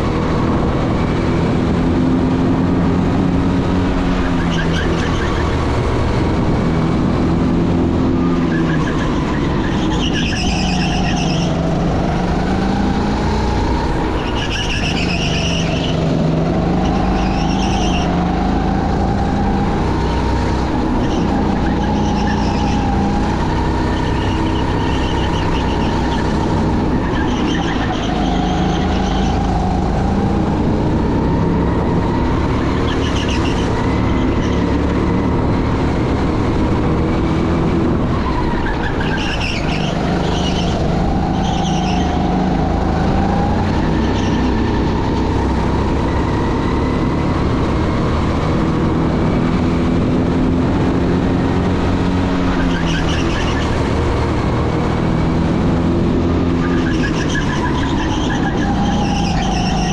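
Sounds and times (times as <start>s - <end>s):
racing engines running: 0.0s - 59.9s
high-pitched squeals: 8.2s - 11.8s, 14.0s - 34.8s, 38.1s - 45.2s, 56.6s - 59.9s.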